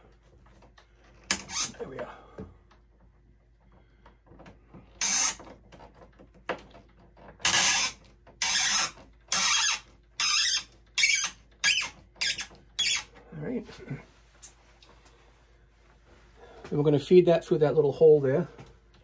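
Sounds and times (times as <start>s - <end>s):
screwdriver scraping strokes: 5.0s - 5.6s, 7.4s - 13.1s.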